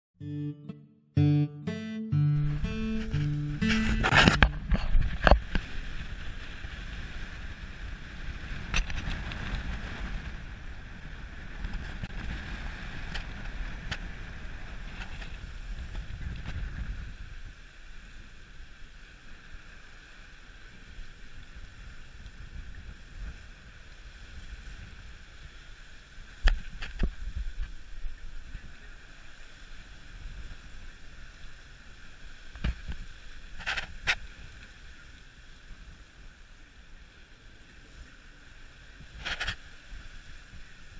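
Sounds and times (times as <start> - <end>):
wind buffeting microphone: 3.6 - 18.0
sea water rushing along hull: 4.0 - 40.9.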